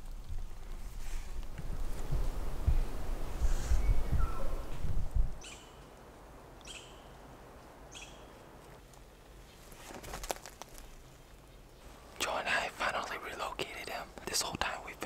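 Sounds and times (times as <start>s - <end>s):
forest background: 0.0s - 15.0s
small bird calling: 3.6s - 4.7s, 5.4s - 5.9s, 6.6s - 7.2s, 7.9s - 8.3s.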